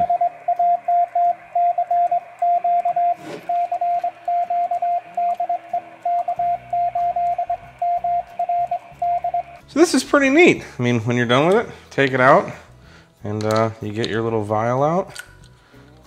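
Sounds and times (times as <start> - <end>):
morse code beeps: 0.0 - 9.6.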